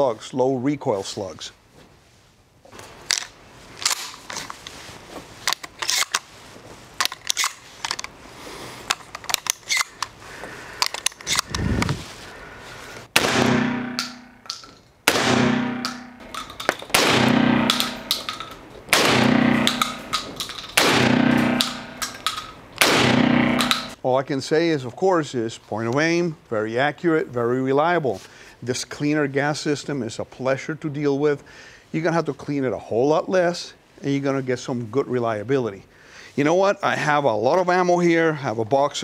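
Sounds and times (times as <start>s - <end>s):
metallic clicks of gun handling: 2.8s - 4.7s, 5.4s - 6.3s, 7.0s - 8.2s, 8.8s - 10.2s, 10.8s - 11.6s, 14.0s - 14.9s, 15.8s - 17.0s, 17.6s - 18.7s, 19.5s - 22.6s, 23.6s - 24.0s
shotgun shots echoing: 13.1s - 14.5s, 15.1s - 24.0s.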